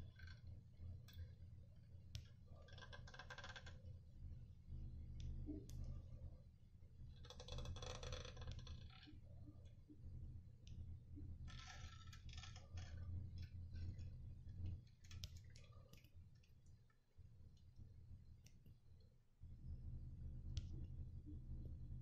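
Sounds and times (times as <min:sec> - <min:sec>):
small clicks: 0:14.9 - 0:17.0.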